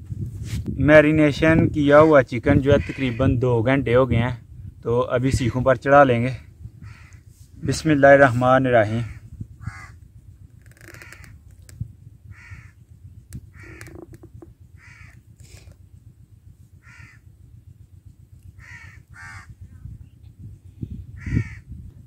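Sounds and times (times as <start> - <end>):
wind rumble on microphone: 0.0 - 22.0
bird calling: 10.6 - 11.4, 13.5 - 15.2, 18.6 - 19.5.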